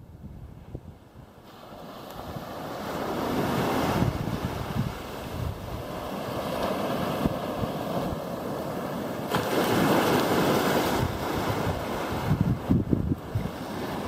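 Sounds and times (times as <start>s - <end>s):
wind buffeting microphone: 0.0s - 14.0s
small waves breaking on beach: 0.6s - 14.0s.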